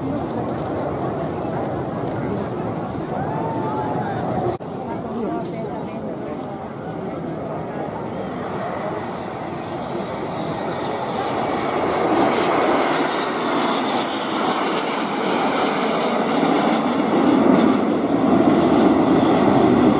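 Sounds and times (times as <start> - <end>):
jet aircraft flying overhead: 0.0 - 19.9.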